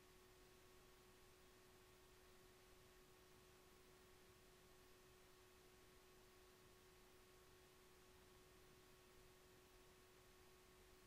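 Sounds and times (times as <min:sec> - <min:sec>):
faint steady hum: 0:00.0 - 0:11.0.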